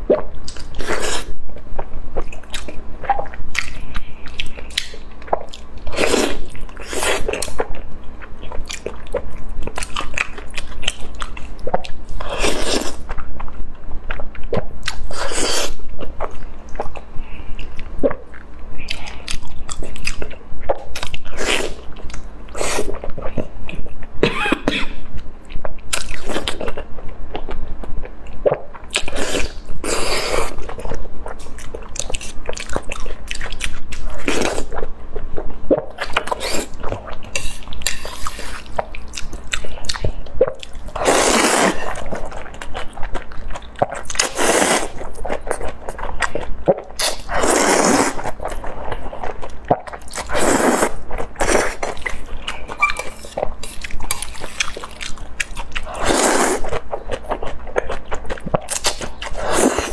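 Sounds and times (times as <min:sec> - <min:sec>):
noodle slurping: 0:41.0 - 0:42.0, 0:44.2 - 0:45.0, 0:47.0 - 0:48.3, 0:50.2 - 0:51.8
wet chewing and lip smacks: 0:51.1 - 0:55.9.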